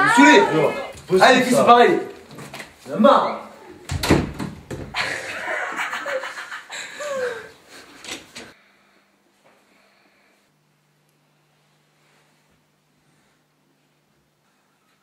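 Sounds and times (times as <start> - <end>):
teenagers giggling: 4.9 - 7.5.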